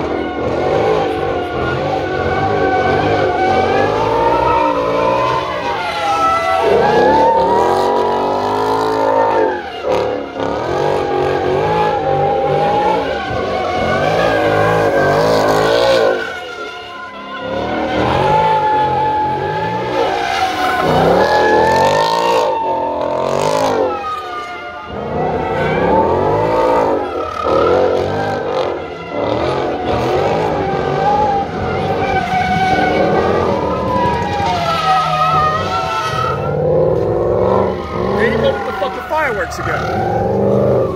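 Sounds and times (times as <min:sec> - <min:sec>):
car engine revving: 0:00.0 - 0:40.9
tyres squealing: 0:32.0 - 0:40.9.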